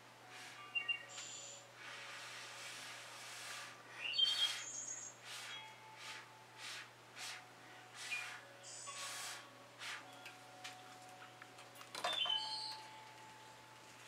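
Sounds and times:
birds chirping: 0.4 - 1.7, 3.9 - 5.8, 7.6 - 9.4, 10.0 - 13.6
short airy hisses: 1.2 - 7.4, 8.0 - 10.1.

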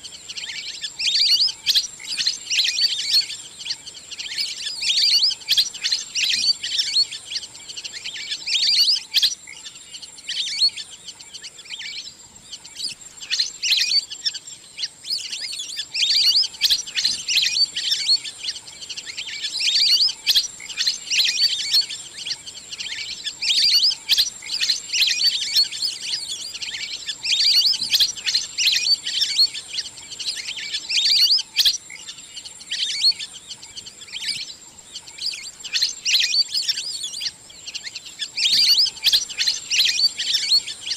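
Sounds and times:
ducks chirping whistles: 0.0 - 40.9.

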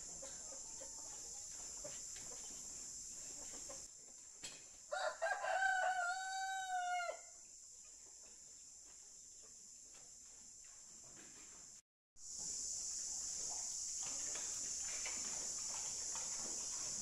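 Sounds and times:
rooster crowing: 4.9 - 7.4.

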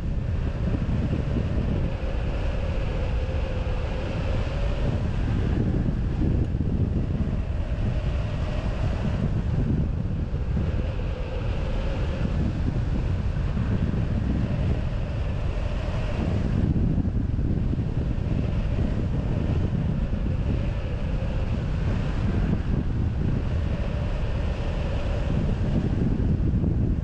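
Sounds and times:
wind buffeting microphone: 0.0 - 27.0.

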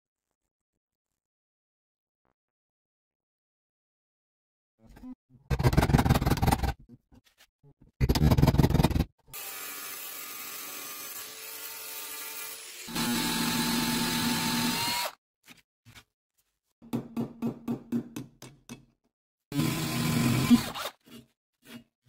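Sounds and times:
power tool running: 9.4 - 15.1.

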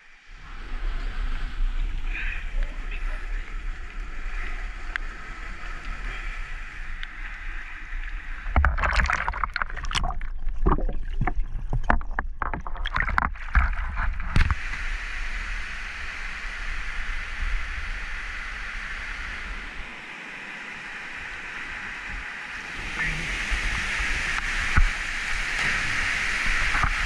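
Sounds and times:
stream water rushing and splashing: 0.0 - 27.0
underwater low thumps: 8.4 - 14.8
underwater bubbling clicks: 8.5 - 14.6.

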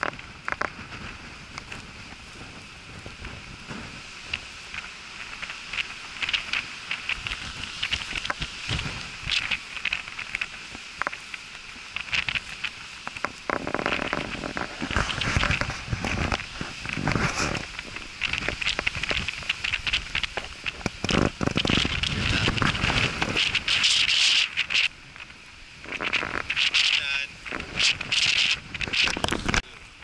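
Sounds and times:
footsteps crunching through dry grass: 0.0 - 30.0.

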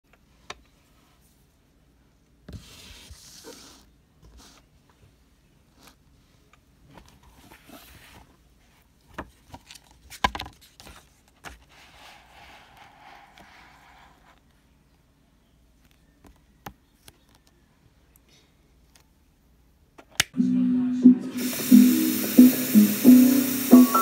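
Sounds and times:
paper pages rustling: 9.2 - 14.4
book sliding rustle: 9.5 - 14.4.

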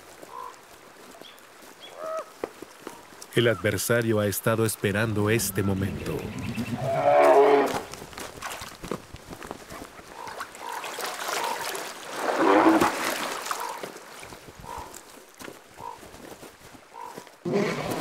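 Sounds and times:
bears growling and roaring: 5.0 - 7.9, 17.4 - 18.0.

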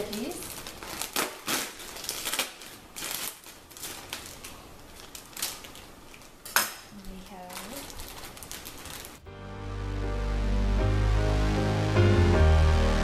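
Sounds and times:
plastic bag crinkling and crackling: 0.0 - 9.3.

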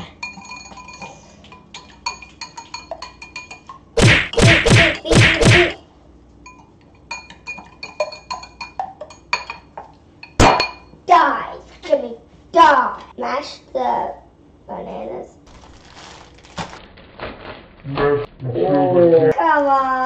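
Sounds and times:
whisk clinking against glass bowl: 0.2 - 3.8, 6.4 - 10.9
loud whacks: 4.0 - 5.8.

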